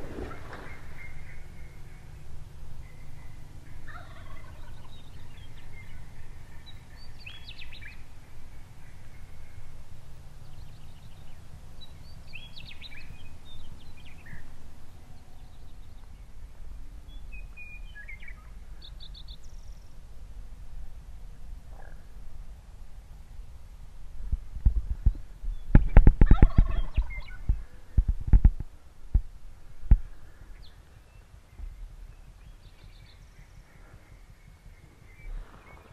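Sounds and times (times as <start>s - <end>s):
turkey gobbling: 0.0s - 2.2s, 2.8s - 7.1s, 26.2s - 27.7s
small bird calls: 0.0s - 20.0s, 21.3s - 22.2s, 24.9s - 28.4s, 30.0s - 35.9s.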